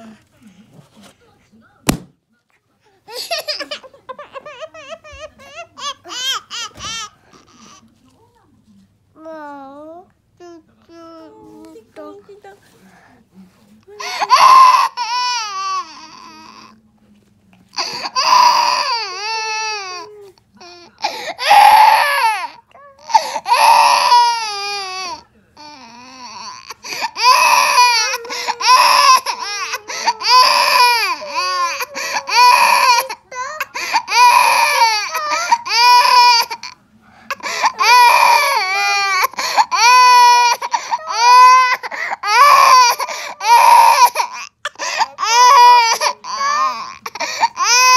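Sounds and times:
balloon bursting: 1.8s - 2.2s
baby crying: 14.0s - 16.8s, 17.8s - 47.9s.

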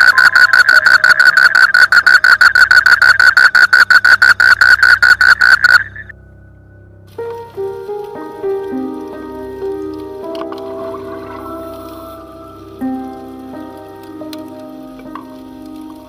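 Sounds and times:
frog rattling call: 0.0s - 6.1s.

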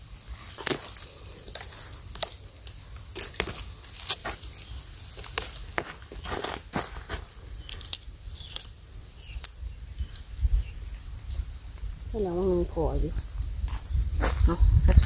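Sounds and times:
bamboo shoots snapping: 0.0s - 10.4s
bamboo leaves rustling: 0.0s - 14.9s.

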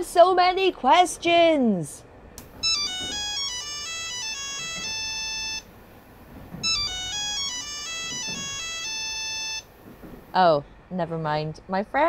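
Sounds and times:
mobile phone ringtone melody: 2.6s - 5.7s, 6.6s - 9.8s.

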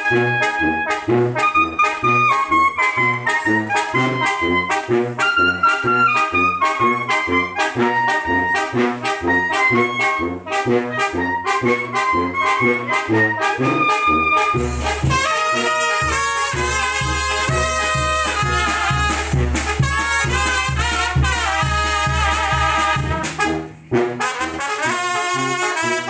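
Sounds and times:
trumpets and saxophones melody: 0.0s - 26.0s
bass drum and snare: 14.5s - 23.6s.

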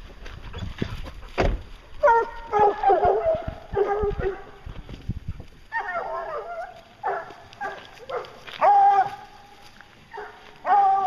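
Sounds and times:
hounds baying and barking: 0.4s - 4.8s, 5.5s - 11.0s.

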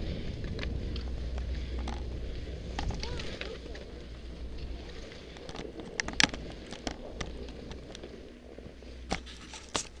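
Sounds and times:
skis sliding over snow: 0.0s - 10.0s
ski gear clicking: 0.4s - 10.0s.

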